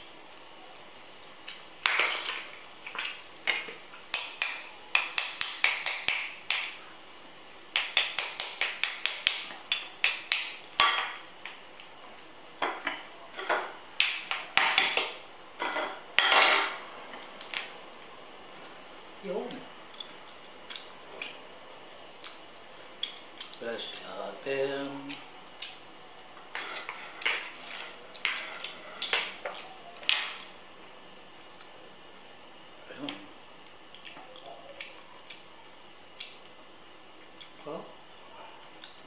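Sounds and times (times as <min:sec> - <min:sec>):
crab shells cracking by hand: 0:01.4 - 0:06.8, 0:07.7 - 0:11.0.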